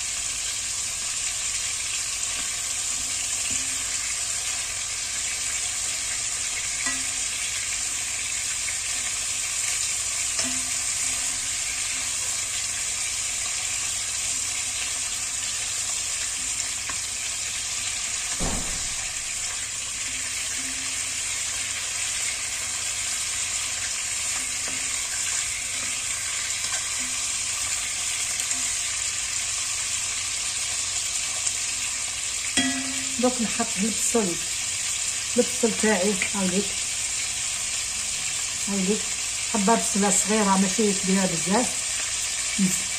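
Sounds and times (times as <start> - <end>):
chicken sizzling in oil: 0.0 - 42.9
knock: 18.4 - 18.9.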